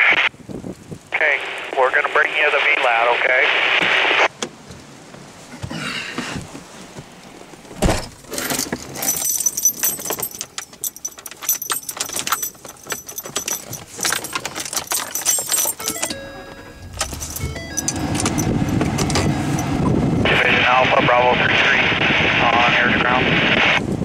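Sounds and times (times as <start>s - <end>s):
clicks and knocks: 7.8s - 19.7s
small metal objects jingling: 8.3s - 19.8s
brief steady tones: 15.3s - 20.0s.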